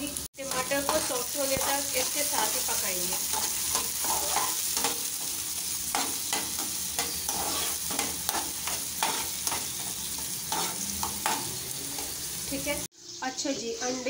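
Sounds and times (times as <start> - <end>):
vegetables sizzling in oil: 0.0 - 14.0
metal spoon scraping a pan: 3.1 - 12.3.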